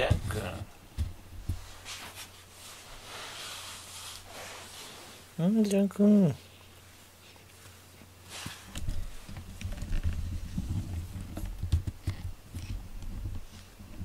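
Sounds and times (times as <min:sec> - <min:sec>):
short rustle: 0:01.4 - 0:05.4, 0:06.4 - 0:11.2.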